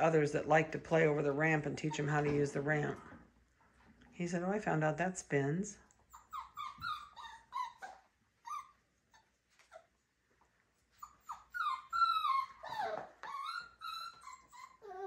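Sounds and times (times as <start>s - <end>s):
puppy whining: 6.0s - 10.1s, 10.8s - 15.0s.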